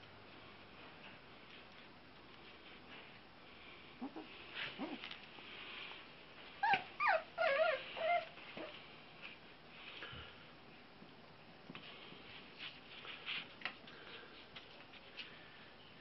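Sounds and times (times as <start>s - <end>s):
puppies whining and yipping: 6.6s - 8.7s.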